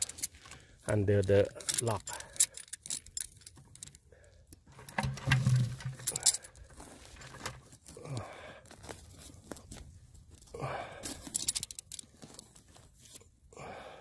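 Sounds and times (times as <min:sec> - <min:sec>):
twigs and needles rustling by hand: 0:05.0 - 0:13.5.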